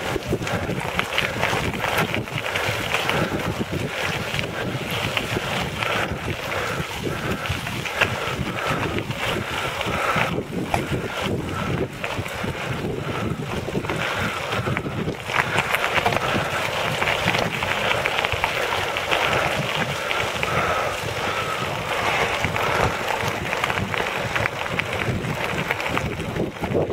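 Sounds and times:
tyres crunching on gravel: 0.0 - 26.9
wind buffeting microphone: 0.0 - 26.9.

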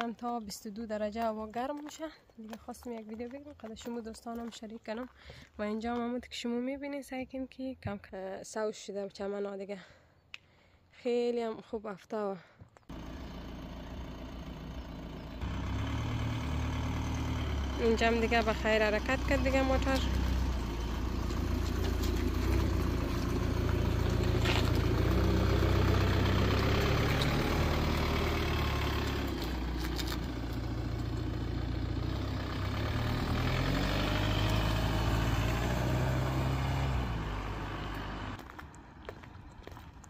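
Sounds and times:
car engine driving: 12.9 - 40.0
road noise: 12.9 - 40.0.

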